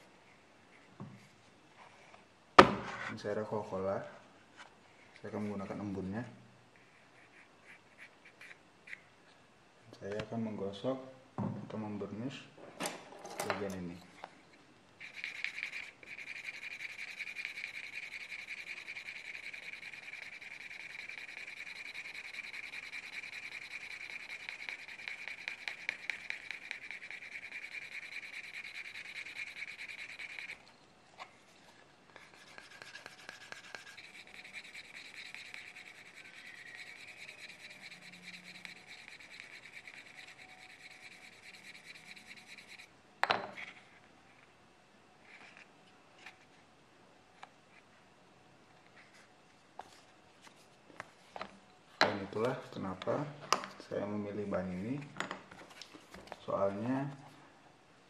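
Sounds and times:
burnisher rubbing leather edge: 0:15.0 - 0:30.6, 0:32.2 - 0:42.9.

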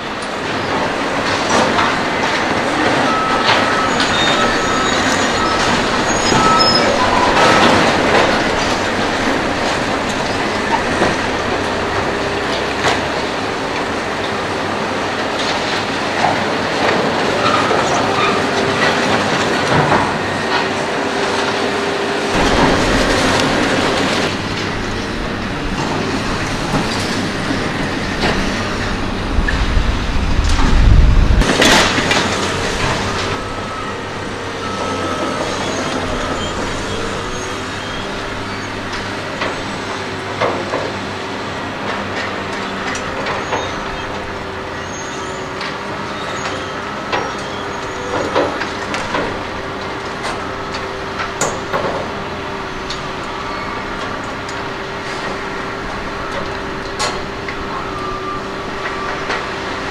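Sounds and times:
heavy rumble: 0:00.0 - 0:17.4, 0:21.2 - 0:40.5
excavator engines whining: 0:00.0 - 0:59.9.

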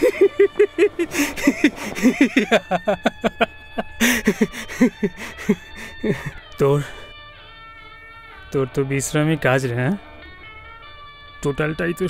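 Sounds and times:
man laughing hard: 0:00.0 - 0:07.0
man drawing a noisy breath: 0:00.0 - 0:08.5.

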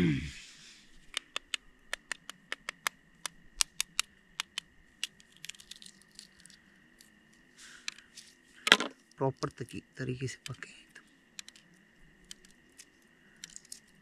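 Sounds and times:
eggshell cracking: 0:01.1 - 0:07.1, 0:11.4 - 0:13.9.

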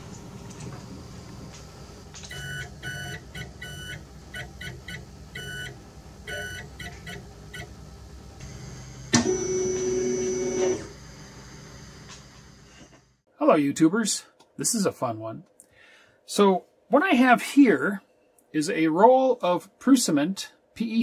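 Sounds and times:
morse code beeps: 0:02.3 - 0:07.7.

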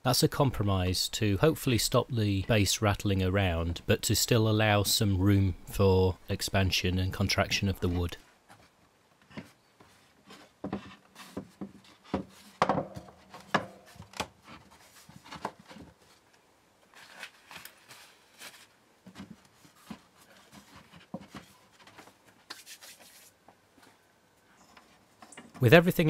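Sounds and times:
wood rubbing and scuffing: 0:07.8 - 0:16.3, 0:16.9 - 0:25.7
wood knocking on wood: 0:10.6 - 0:14.2.

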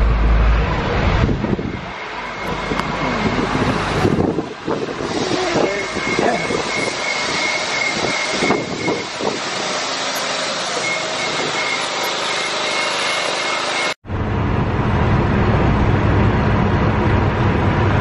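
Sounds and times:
wind rushing: 0:00.0 - 0:12.0
city traffic noise: 0:00.0 - 0:18.0.

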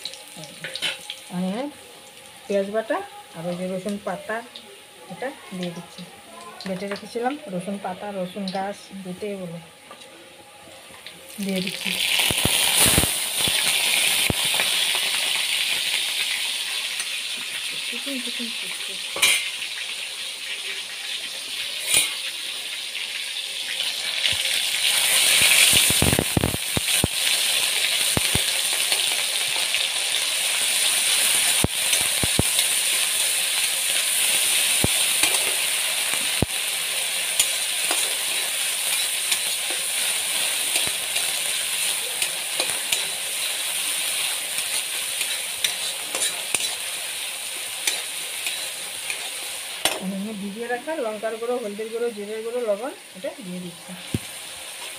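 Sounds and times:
paste sizzling in oil: 0:11.3 - 0:54.9
spatula scraping pan: 0:40.7 - 0:46.9, 0:47.6 - 0:50.0.

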